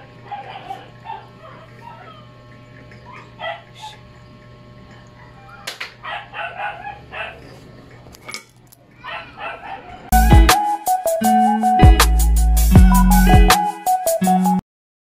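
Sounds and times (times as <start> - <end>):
dog yipping: 0.3 - 2.3, 3.0 - 4.0, 5.2 - 7.6, 9.0 - 10.1.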